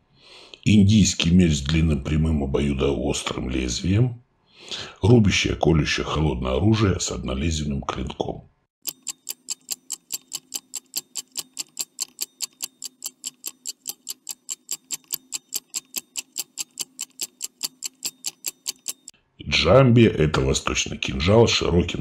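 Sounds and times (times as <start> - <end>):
stopwatch ticking: 8.8 - 19.1.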